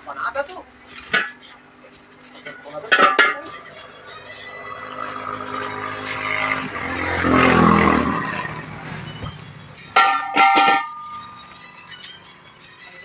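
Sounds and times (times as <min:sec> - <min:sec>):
vehicle engine passing: 0:02.4 - 0:10.0
metallic clangs on concrete: 0:02.8 - 0:03.8, 0:09.2 - 0:11.3.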